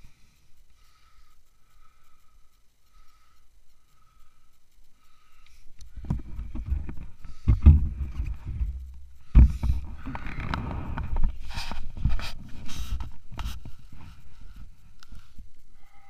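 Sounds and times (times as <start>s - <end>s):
camera handling rubs and bumps: 6.0s - 14.2s.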